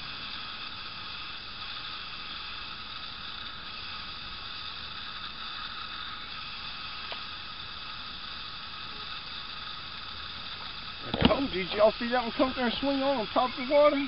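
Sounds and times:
steady hiss: 0:00.0 - 0:14.0
faint high hum: 0:06.1 - 0:14.0.

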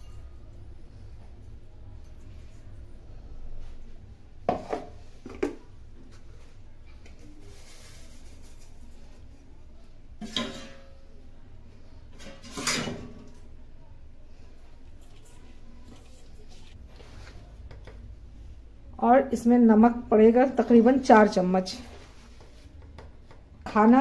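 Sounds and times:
metal containers clinking on steel bowl: 0:10.2 - 0:11.0.

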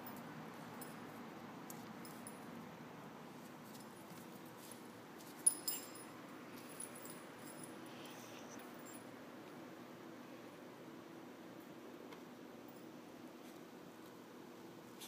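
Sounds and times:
harness and leash metallic jingles: 0:00.0 - 0:02.5, 0:03.6 - 0:09.2.

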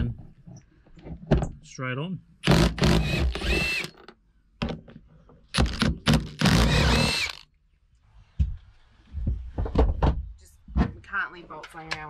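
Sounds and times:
cordless drill whine: 0:02.5 - 0:04.0, 0:06.3 - 0:07.4.

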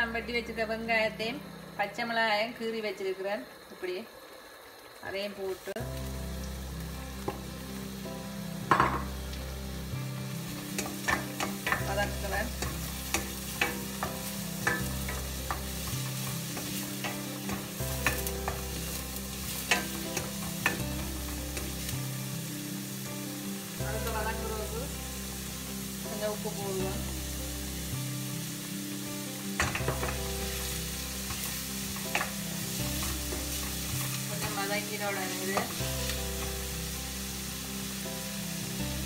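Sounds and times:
onions sizzling in hot oil: 0:00.0 - 0:39.0
wooden spoon knocking and scraping pan: 0:10.8 - 0:18.8, 0:29.6 - 0:30.3, 0:31.2 - 0:34.9.

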